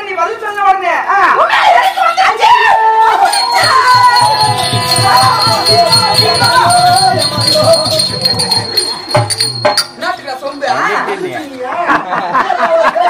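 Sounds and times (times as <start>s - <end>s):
wavering melody: 3.2s - 10.9s
jingling: 3.2s - 11.1s
fast drum beat: 3.3s - 10.1s.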